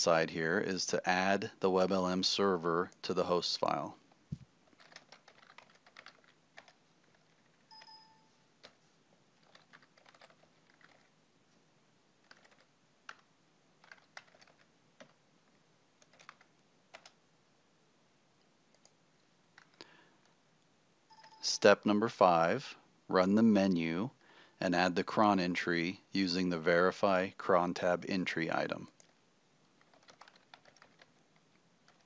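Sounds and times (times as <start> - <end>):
typing on computer keyboard: 4.6 - 8.8, 9.4 - 11.1, 12.2 - 15.2, 16.0 - 17.2, 18.7 - 19.0, 19.6 - 19.8, 29.8 - 32.0
brief faint beep: 7.7 - 8.4.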